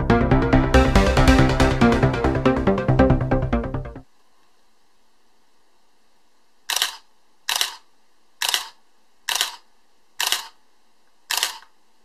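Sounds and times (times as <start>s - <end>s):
camera shutter clacking: 6.7s - 7.8s, 8.4s - 9.6s, 10.2s - 10.6s, 11.3s - 11.7s.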